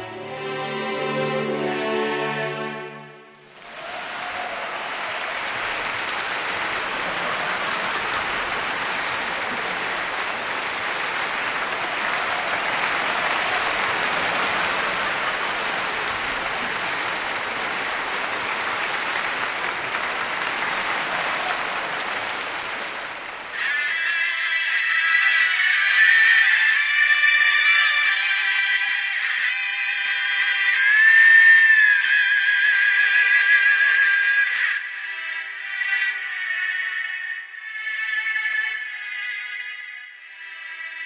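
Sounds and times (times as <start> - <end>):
large crowd applauding: 3.4 - 34.6.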